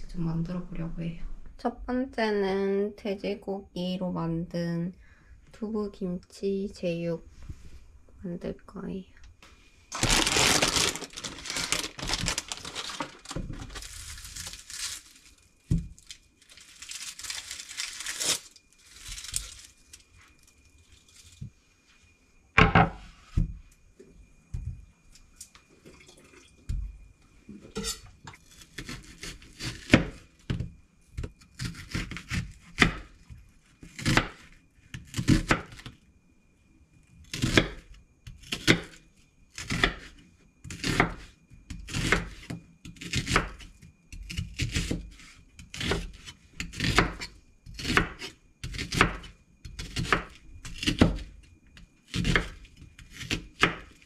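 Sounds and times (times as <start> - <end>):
rustling and tearing: 9.9 - 21.4
knife cutting onion on board: 27.8 - 30.6, 39.6 - 51.2, 52.1 - 53.9.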